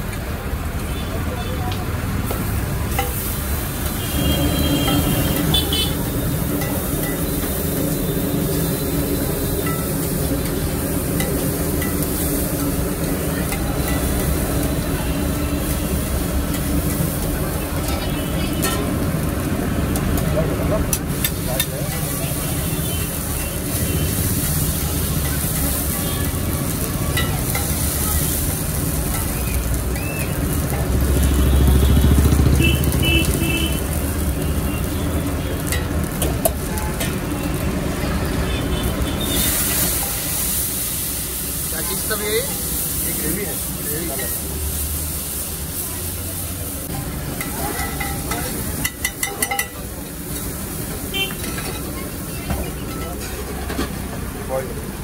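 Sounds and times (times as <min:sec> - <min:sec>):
food sizzling: 0:00.0 - 0:55.0
spatula scraping hot metal: 0:02.9 - 0:19.1
metal spatula scraping griddle: 0:51.3 - 0:52.0.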